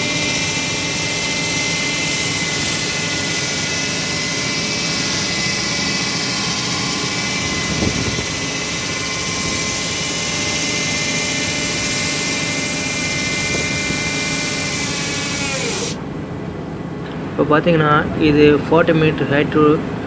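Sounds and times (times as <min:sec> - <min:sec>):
wall saw cutting concrete: 0:00.0 - 0:16.0.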